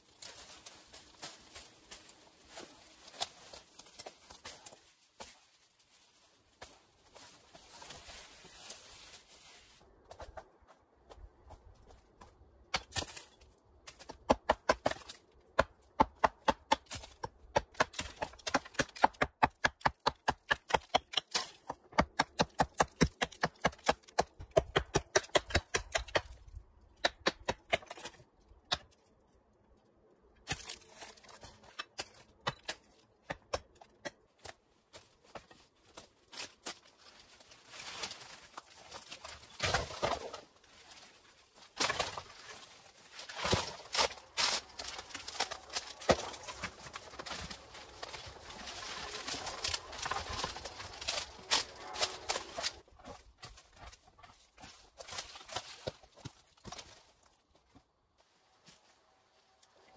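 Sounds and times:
footsteps crunching dry brush: 0.0 - 10.0, 40.2 - 57.3.

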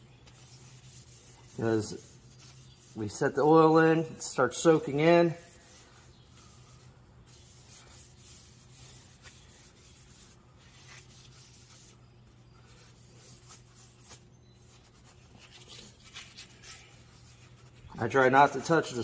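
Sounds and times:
steady low hum: 0.0 - 19.0
paper towel rubbing wood: 0.2 - 3.8, 4.6 - 12.0.

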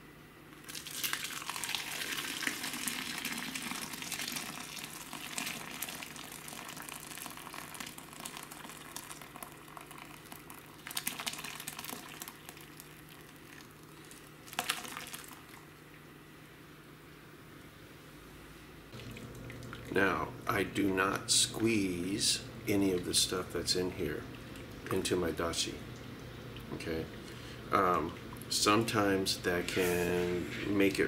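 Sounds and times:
liquid pouring through strainer: 0.6 - 15.7.

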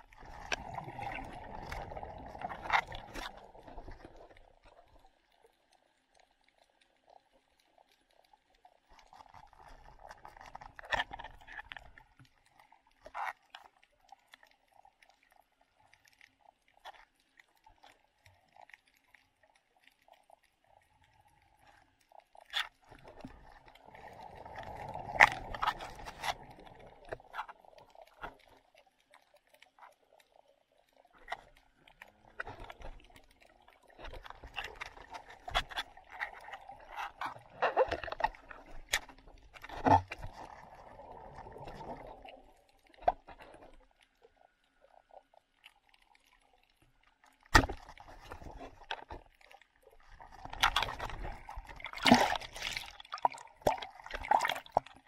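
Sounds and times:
muffled underwater bubbling: 0.0 - 5.0, 31.1 - 43.6.

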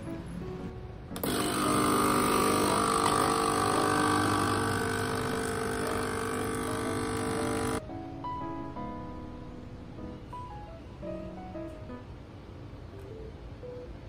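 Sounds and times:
espresso machine pump buzzing: 1.2 - 7.8.

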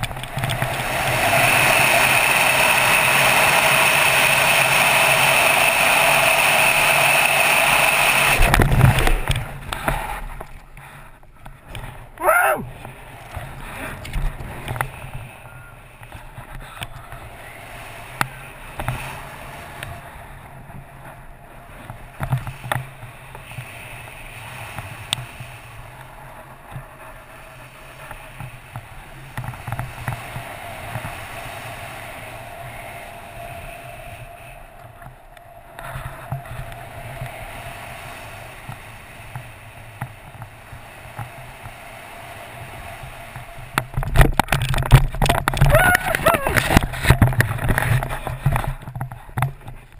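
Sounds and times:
wind rushing over microphone: 0.0 - 10.8, 11.6 - 49.9.

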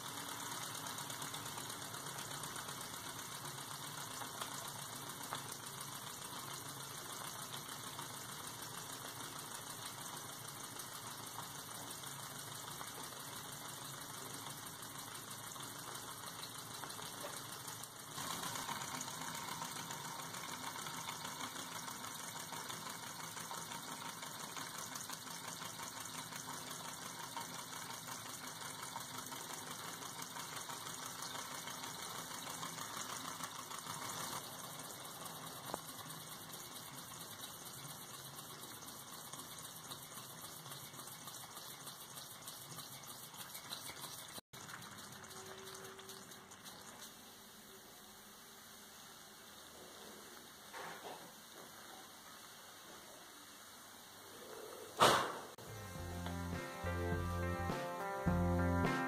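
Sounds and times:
model steam engine clatter: 0.0 - 47.1.

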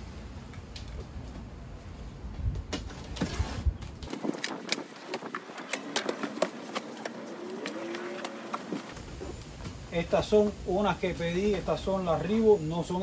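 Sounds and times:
knife cutting tape and cardboard: 2.8 - 9.0
packing being handled: 3.0 - 9.4.

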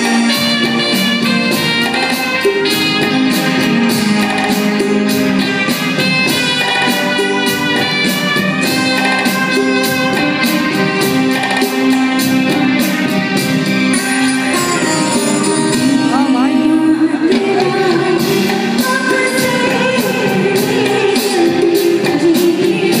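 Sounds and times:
band with keyboard guitars and drums: 0.0 - 23.0
woman singing: 14.5 - 23.0.

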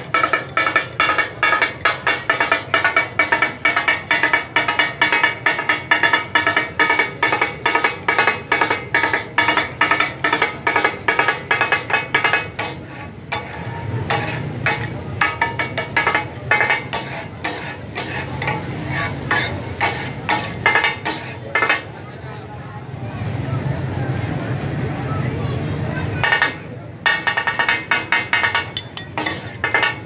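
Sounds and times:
spatulas chopping on griddle: 0.0 - 22.0, 26.2 - 30.0.

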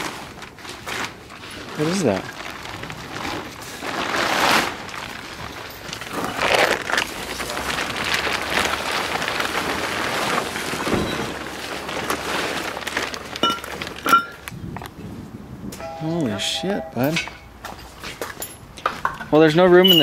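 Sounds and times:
plastic tarp rustling: 0.0 - 15.0.

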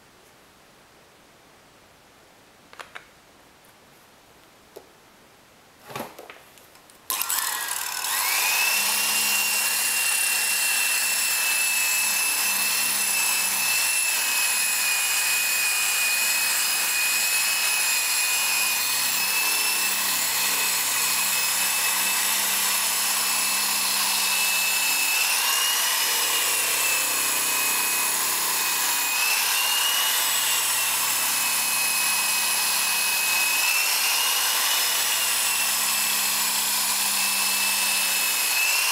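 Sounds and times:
electric drill buffing whine: 7.1 - 38.9.

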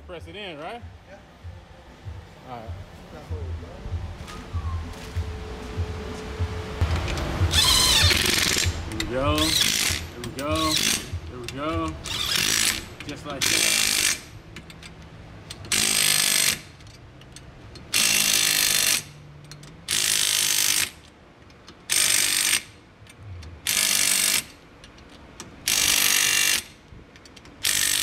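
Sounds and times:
impact wrench hammering: 6.8 - 14.8, 25.6 - 28.0.

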